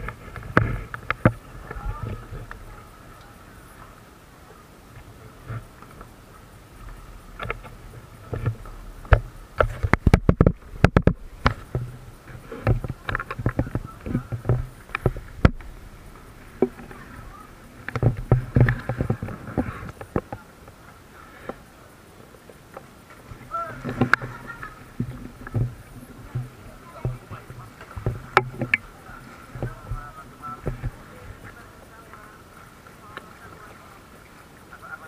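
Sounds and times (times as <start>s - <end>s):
paddle knocking on hull: 0.0s - 2.8s, 6.8s - 20.5s, 22.7s - 32.4s
paddle splashing in water: 0.0s - 35.0s.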